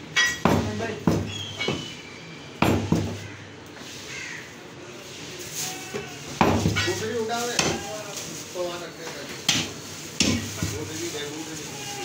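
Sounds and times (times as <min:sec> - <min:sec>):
cleaver chopping meat on wood: 0:00.4 - 0:01.9, 0:02.6 - 0:03.2, 0:06.4 - 0:06.8, 0:07.6 - 0:07.8, 0:09.4 - 0:10.8.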